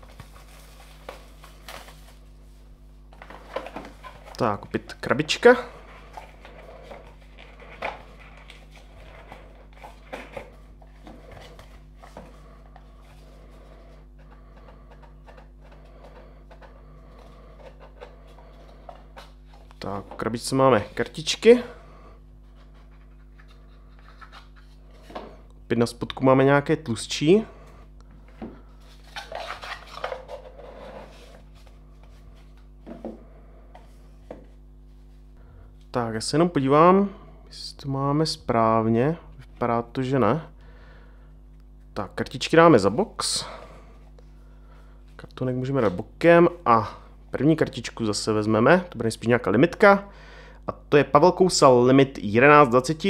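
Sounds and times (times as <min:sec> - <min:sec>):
cardboard rustling and scraping: 0:00.0 - 0:21.1, 0:28.7 - 0:35.1.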